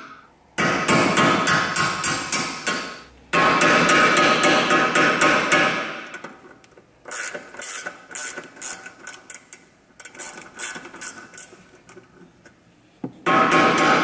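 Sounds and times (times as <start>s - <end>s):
ratchet wrench clicking: 7.1s - 11.6s.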